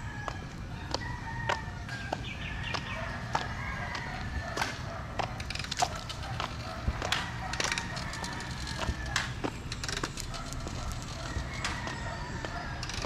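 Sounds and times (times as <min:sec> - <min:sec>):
footsteps walking: 0:00.2 - 0:13.0.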